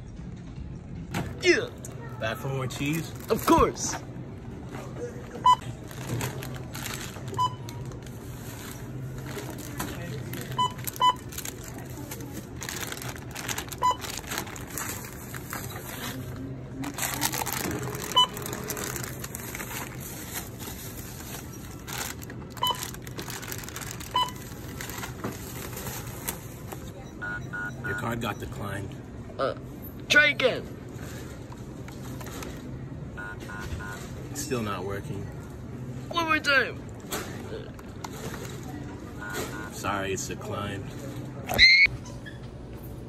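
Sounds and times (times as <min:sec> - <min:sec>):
plastic packaging crinkling: 0:02.7 - 0:03.6, 0:05.8 - 0:26.5
barcode scanner beeps: 0:10.5 - 0:11.4, 0:13.8 - 0:14.2, 0:18.1 - 0:18.7, 0:22.6 - 0:23.0, 0:24.1 - 0:24.5, 0:27.0 - 0:28.6, 0:39.2 - 0:39.8.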